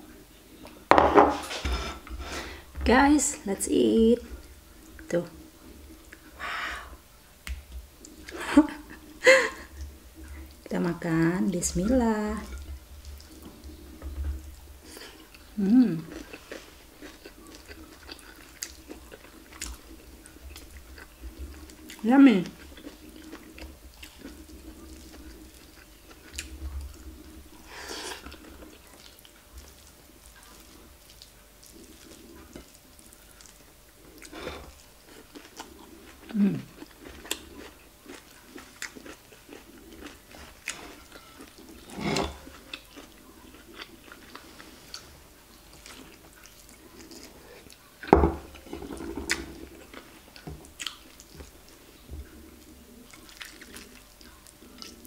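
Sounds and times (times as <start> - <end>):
person chewing food: 12.4 - 55.0.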